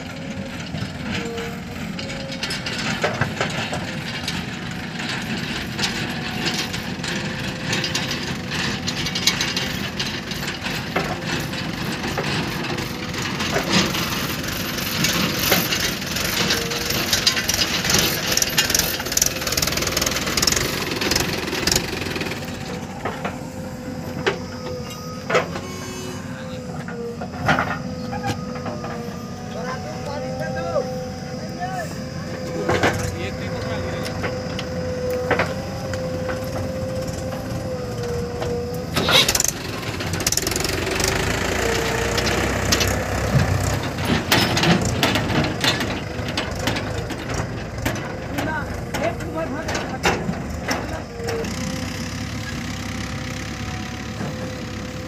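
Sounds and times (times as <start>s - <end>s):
earth and metal clattering: 0.0s - 51.3s
diesel engine under load: 0.0s - 55.0s.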